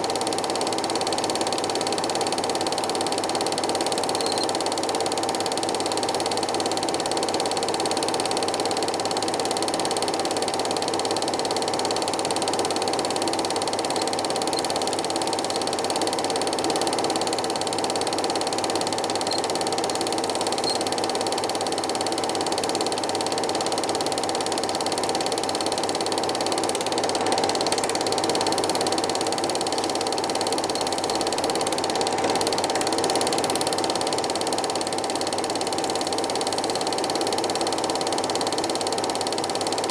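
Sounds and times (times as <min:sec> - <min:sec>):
film projector clatter: 0:00.0 - 0:39.9
projector whirr: 0:02.8 - 0:36.9.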